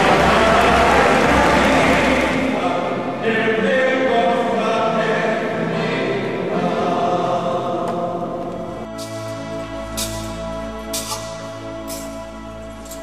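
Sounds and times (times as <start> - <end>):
choir singing slow chant: 0.0 - 9.5
different music: 4.6 - 13.0.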